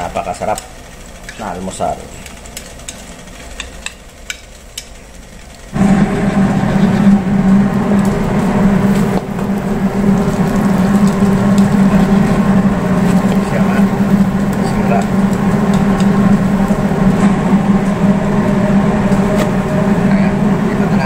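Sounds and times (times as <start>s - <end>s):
omelette sizzling in a pan: 0.0s - 17.1s
loud steady hum: 0.0s - 21.0s
spatula clicking against pan: 2.2s - 5.0s.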